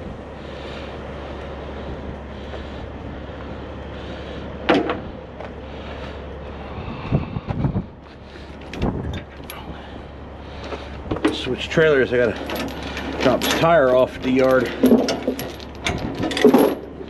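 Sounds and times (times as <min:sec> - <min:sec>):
truck engine idling: 0:00.0 - 0:17.0.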